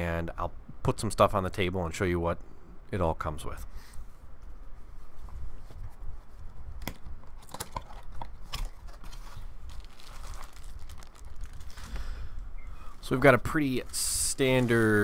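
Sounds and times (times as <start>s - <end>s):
packaging crinkling and rustling: 7.3s - 12.2s, 13.0s - 15.0s.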